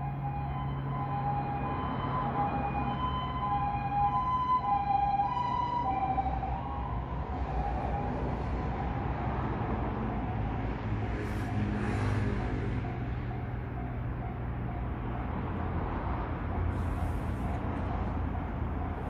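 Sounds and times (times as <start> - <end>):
railway crossing warning bell: 9.8 - 16.7, 17.3 - 19.0.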